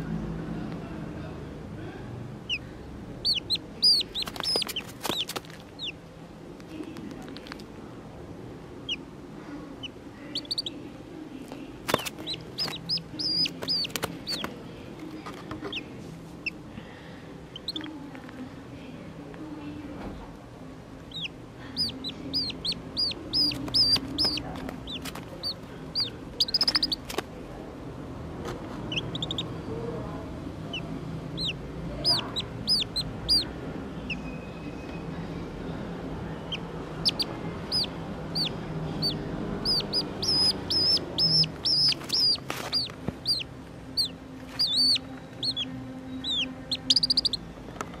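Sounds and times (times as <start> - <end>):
duckling distress peeps: 3.2 - 6.0, 9.8 - 10.8, 11.9 - 14.5, 21.1 - 27.1, 28.9 - 29.6, 30.7 - 33.5, 36.4 - 47.4.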